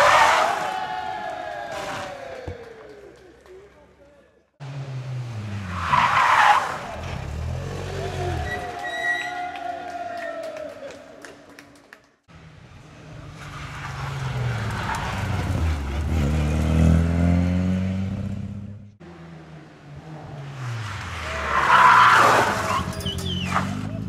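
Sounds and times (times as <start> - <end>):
rally car engine passing: 12.4 - 24.0.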